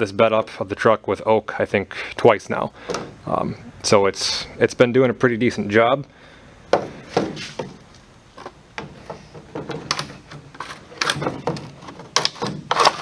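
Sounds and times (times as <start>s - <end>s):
plastic clacking on metal bar: 8.4s - 13.0s.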